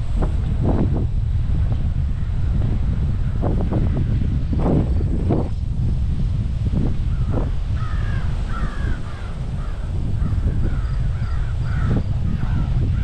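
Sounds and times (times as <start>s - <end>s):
wind rumble on microphone: 0.0s - 13.0s
crow cawing: 7.1s - 12.7s.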